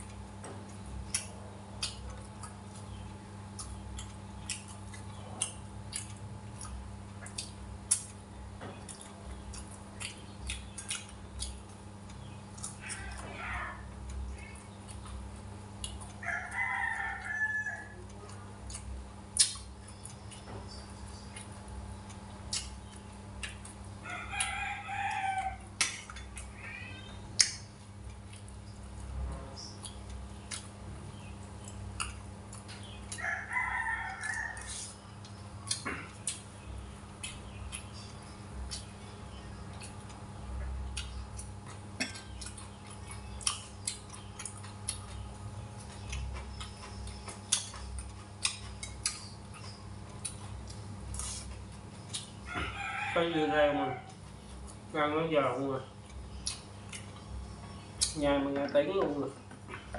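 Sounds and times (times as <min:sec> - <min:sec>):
crunchy chewing: 0:00.0 - 0:59.9
rooster crowing: 0:16.2 - 0:18.0, 0:24.0 - 0:25.7, 0:33.1 - 0:34.9, 0:52.5 - 0:54.2.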